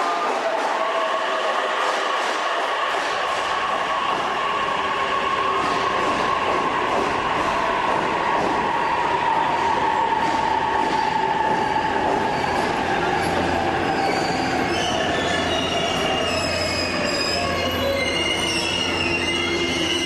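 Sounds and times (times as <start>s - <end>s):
electric train braking: 11.6s - 20.0s
wheel and brake squeals: 11.6s - 20.0s.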